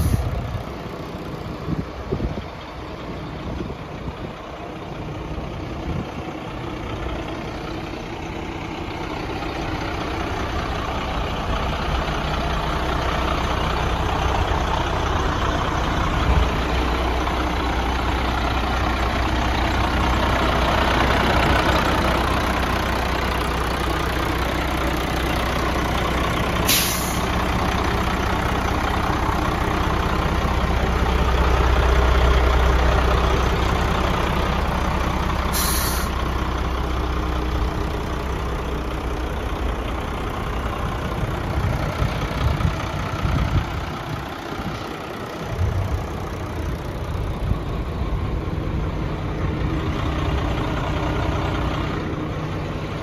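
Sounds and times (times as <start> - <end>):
diesel truck engine idling: 0.0 - 53.0
air hisses: 26.7 - 27.3, 35.5 - 36.2.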